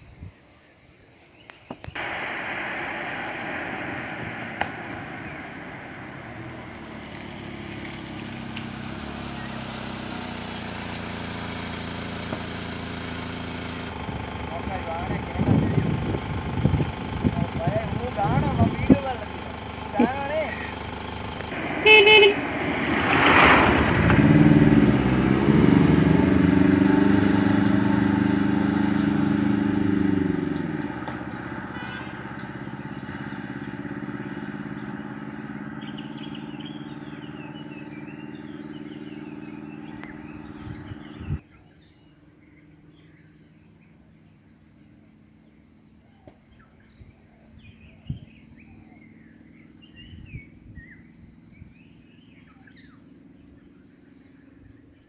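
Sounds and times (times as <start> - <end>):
vehicle engine running: 1.6 - 46.7, 47.5 - 55.0
faint bird chirps: 30.3 - 44.4, 46.0 - 55.0.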